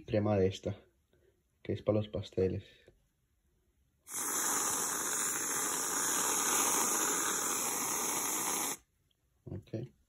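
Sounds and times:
aerosol can spraying hiss: 4.1s - 8.8s.

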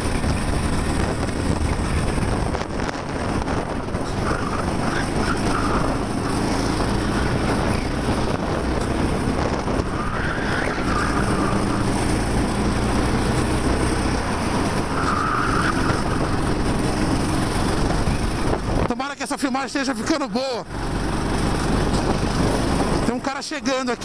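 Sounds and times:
kart engine running hard: 0.0s - 18.8s, 20.6s - 23.1s
wind noise on microphone: 0.0s - 19.2s, 20.7s - 23.1s
tyres squealing: 4.1s - 6.5s, 9.9s - 11.9s, 14.8s - 16.5s.

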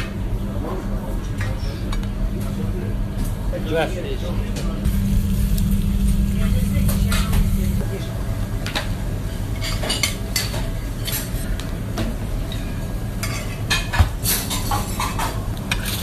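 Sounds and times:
steady low hum: 1.7s - 13.2s.

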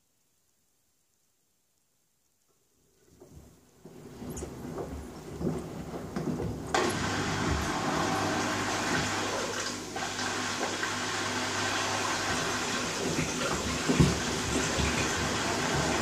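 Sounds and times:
water rushing into drum: 6.8s - 16.0s
load sloshing and thudding in drum: 12.2s - 16.0s.

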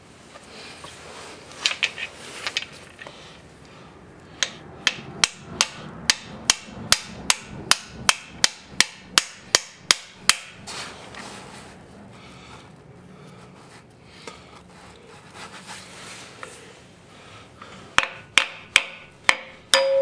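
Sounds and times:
hammer striking metal: 4.4s - 10.6s, 18.0s - 20.0s.

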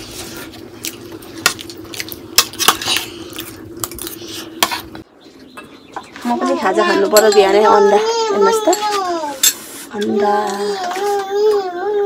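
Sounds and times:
spoon scraping ceramic plate: 8.5s - 10.4s.

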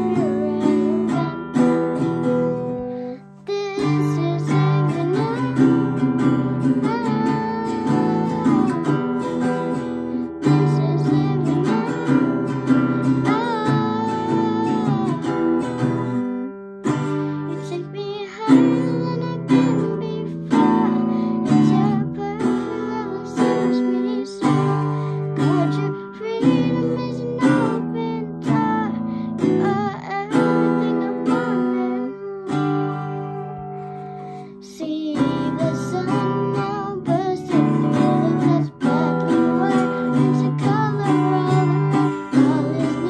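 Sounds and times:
acoustic guitar strumming: 0.0s - 43.0s
girl singing: 0.0s - 43.0s.

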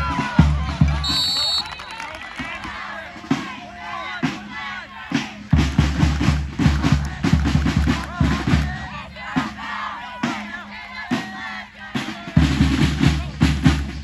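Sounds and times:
crowd shouting and cheering: 0.0s - 13.5s
drums beating fast rhythm: 0.0s - 14.0s.

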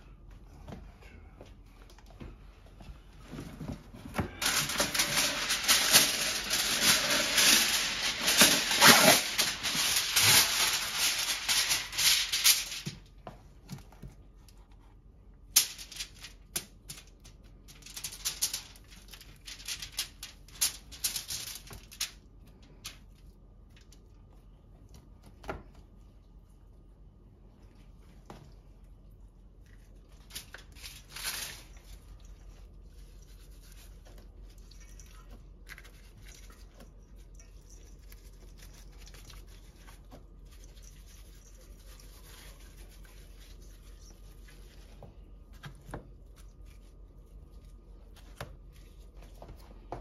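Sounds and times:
loud crinkling rattle: 4.4s - 13.0s, 15.5s - 23.1s, 30.2s - 32.1s.

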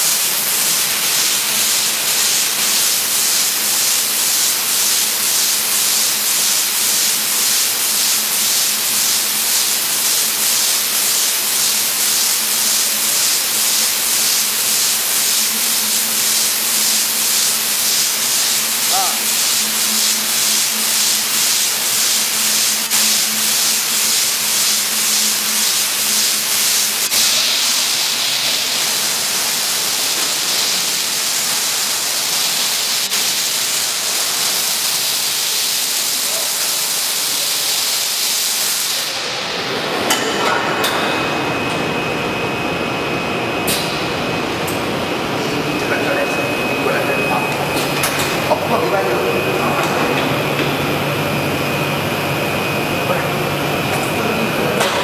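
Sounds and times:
slitting machine hiss: 0.0s - 41.5s
low machine hum: 39.1s - 55.0s.

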